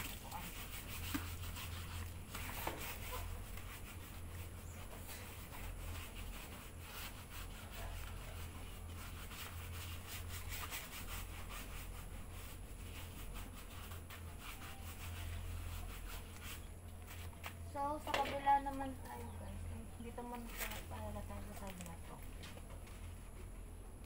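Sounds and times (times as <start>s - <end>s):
rubbing and scrubbing: 0.0s - 17.4s
steady low hum: 0.0s - 24.0s.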